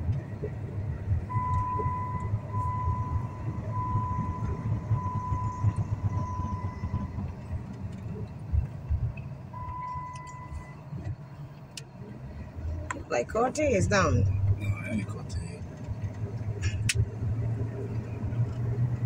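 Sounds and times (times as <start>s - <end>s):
car cabin rumble: 0.0s - 19.0s
electronic warning chime beeping: 1.3s - 7.0s.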